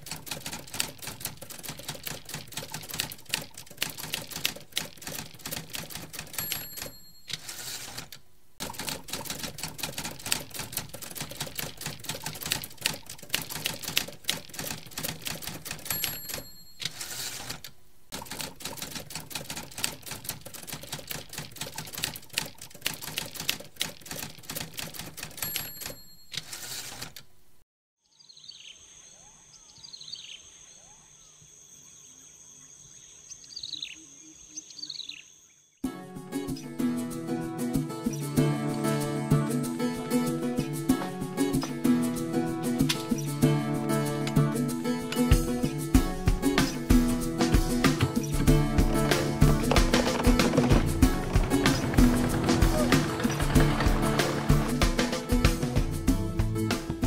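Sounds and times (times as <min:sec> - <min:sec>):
typewriter key clacks: 0:00.0 - 0:27.3, 0:47.5 - 0:55.6
typewriter bell ding: 0:05.9 - 0:08.1, 0:15.5 - 0:17.5, 0:25.2 - 0:27.1.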